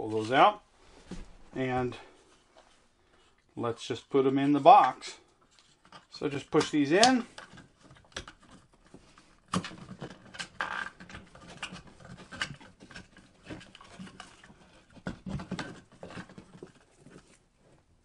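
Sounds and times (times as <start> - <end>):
plastic and wire knocking and scraping: 5.6 - 17.8.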